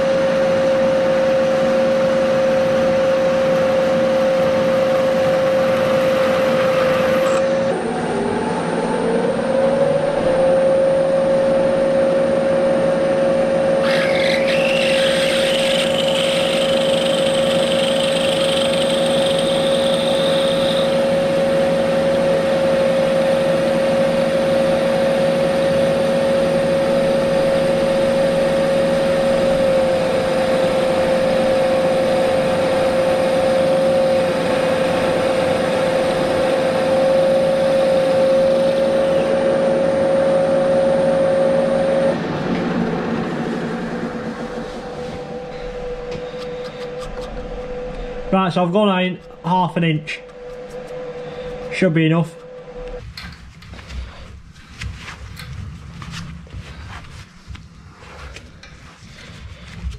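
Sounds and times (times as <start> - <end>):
milling machine running: 2.0 - 53.0
drill bit squealing in metal: 13.8 - 21.0, 48.5 - 52.7.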